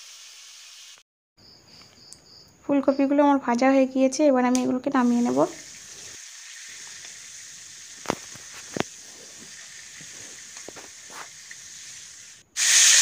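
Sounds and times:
loud frying sizzle: 0.0s - 1.0s, 5.0s - 13.0s
faint hiss of oil: 5.2s - 13.0s.

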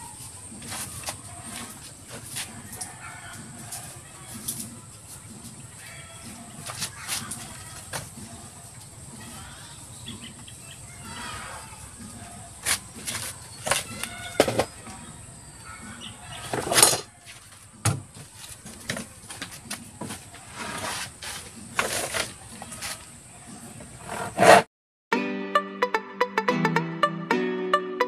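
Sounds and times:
hand tools scraping and knocking: 0.0s - 5.6s, 6.2s - 9.4s, 12.0s - 15.1s, 15.9s - 24.7s
handsaw cutting wood: 20.4s - 23.0s, 24.0s - 24.7s.

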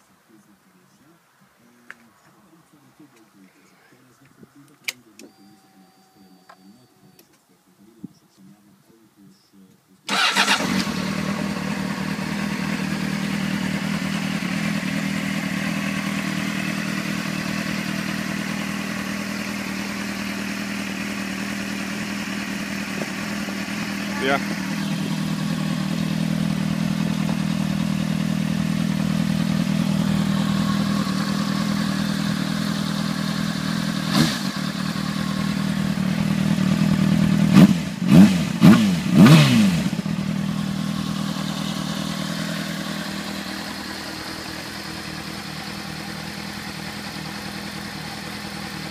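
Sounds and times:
motorcycle engine idling and revving: 10.1s - 48.9s.

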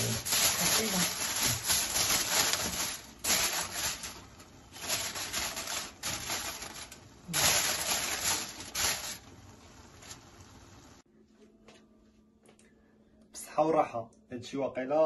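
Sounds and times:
aluminium foil crinkling: 0.0s - 11.0s.

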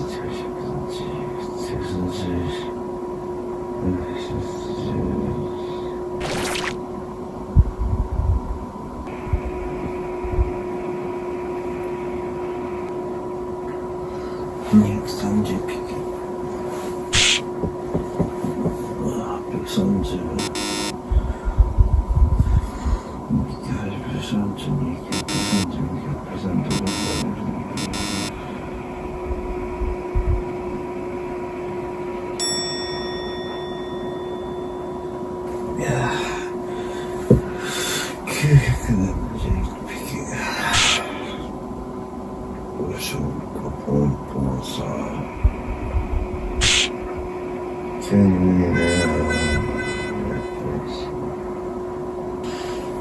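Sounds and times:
mechanical room hum: 0.0s - 53.0s
dull low thumps: 7.5s - 8.6s, 17.5s - 18.9s, 21.1s - 22.6s, 29.8s - 30.5s
low thumps: 17.4s - 18.9s
bell-like ding: 32.4s - 35.2s, 48.7s - 50.6s.

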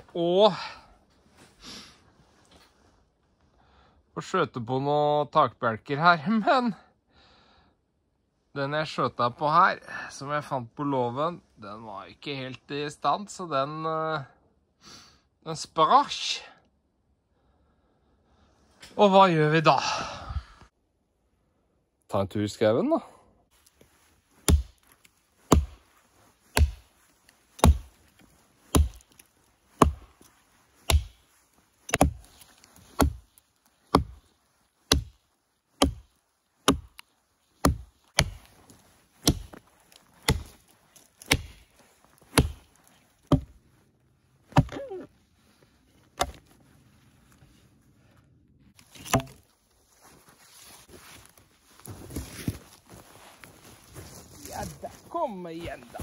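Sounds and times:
axe chopping into tree: 24.4s - 25.8s, 26.5s - 26.9s, 27.5s - 28.0s, 28.7s - 30.2s, 30.8s - 31.3s, 31.9s - 34.3s, 34.9s - 35.2s, 35.8s - 37.0s, 37.6s - 43.6s, 44.5s - 44.9s, 46.2s - 46.5s, 48.8s - 49.5s.

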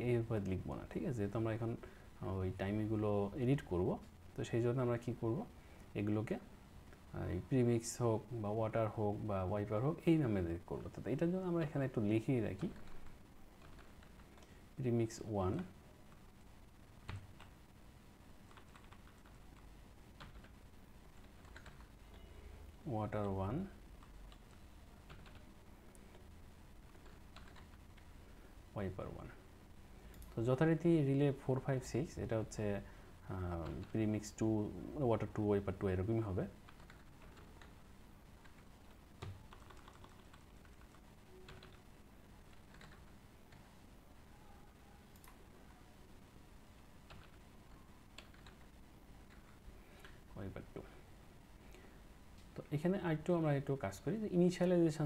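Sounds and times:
keyboard typing: 12.6s - 14.5s, 17.0s - 17.5s, 18.5s - 20.6s, 21.2s - 22.3s, 24.0s - 26.2s, 26.9s - 28.1s, 36.7s - 37.8s, 38.4s - 41.8s, 42.5s - 43.6s, 45.1s - 45.8s, 47.1s - 48.7s.

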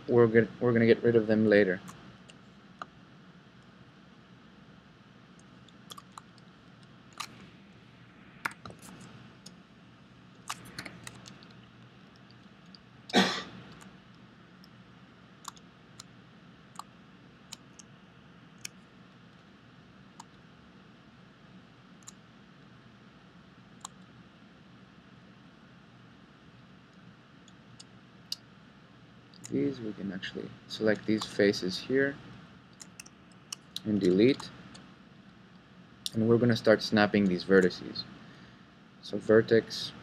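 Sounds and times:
mouse and keyboard clicks: 10.4s - 11.6s, 32.8s - 34.9s.

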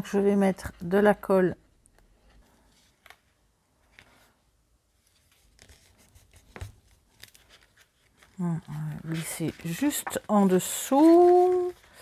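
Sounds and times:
paper and card handling: 2.4s - 12.0s.

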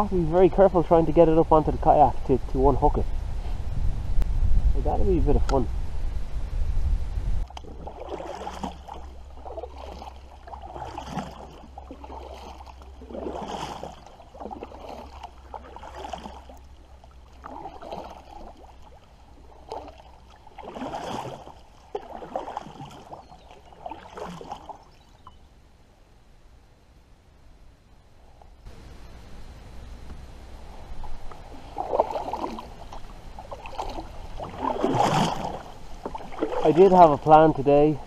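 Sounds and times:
kayak paddle splashing: 7.4s - 25.4s, 30.0s - 38.0s.

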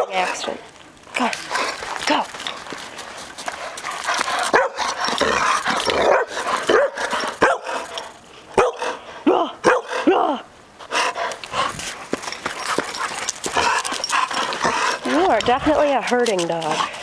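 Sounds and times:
dog barking: 4.5s - 4.8s, 6.0s - 7.8s, 8.6s - 9.0s, 9.6s - 10.0s.

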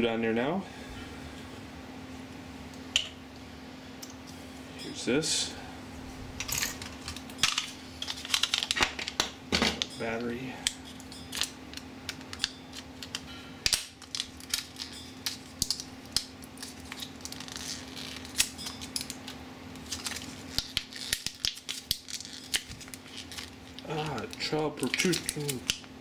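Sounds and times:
low steady hum: 0.0s - 26.0s
plastic blister pack crinkling: 13.9s - 25.9s.

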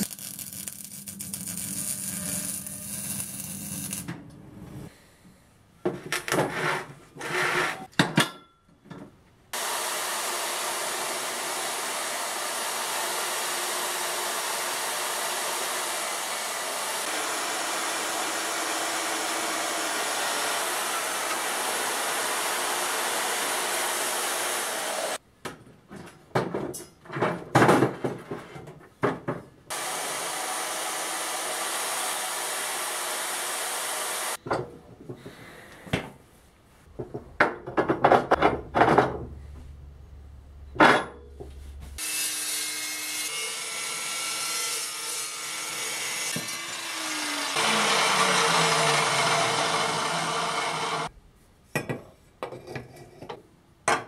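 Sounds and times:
drill motor drilling steel: 9.6s - 25.2s, 29.7s - 34.4s, 43.4s - 51.1s.

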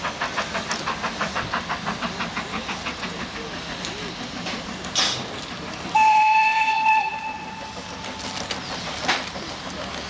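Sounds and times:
steam locomotive whistle: 5.9s - 7.9s.

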